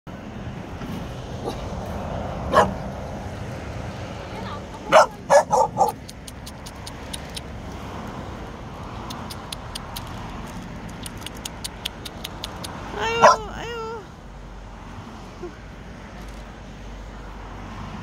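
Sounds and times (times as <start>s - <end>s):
young dog whining yelp: 13.0s - 14.0s.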